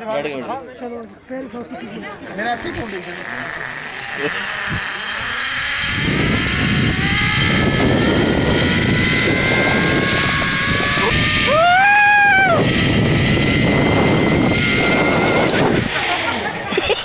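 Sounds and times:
zipline pulleys on cable: 0:02.0 - 0:17.0
high rising and falling tone: 0:02.8 - 0:17.0
wind on microphone: 0:04.6 - 0:16.1.

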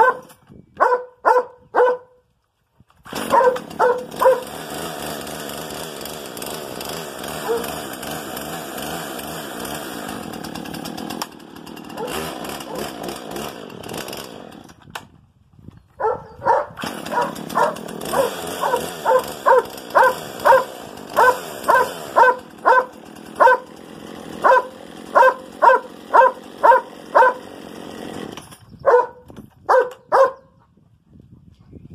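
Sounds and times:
dog barking: 0:00.0 - 0:02.2, 0:03.3 - 0:04.4, 0:07.4 - 0:07.6, 0:16.0 - 0:23.6, 0:24.4 - 0:27.4, 0:28.8 - 0:30.5
chainsaw running: 0:03.0 - 0:15.1, 0:16.0 - 0:30.3.

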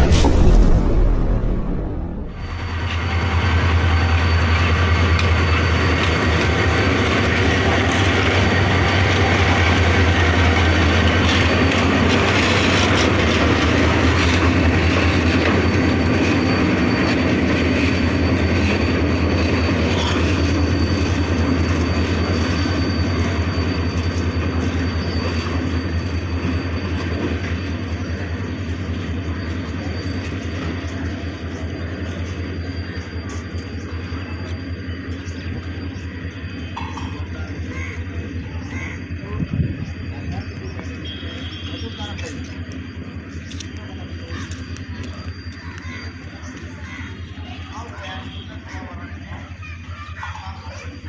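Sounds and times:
diesel locomotive engine droning: 0:00.0 - 0:51.0
wheel and rail noise: 0:01.7 - 0:51.0.

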